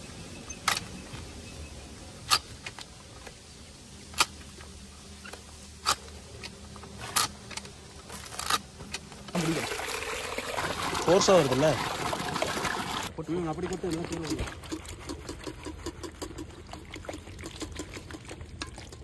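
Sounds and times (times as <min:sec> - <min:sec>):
water running: 0:09.2 - 0:19.0.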